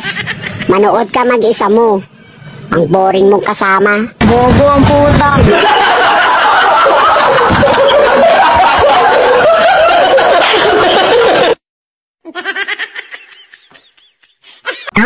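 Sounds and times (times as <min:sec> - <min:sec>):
people laughing loudly: 0:05.4 - 0:11.6, 0:12.3 - 0:15.0.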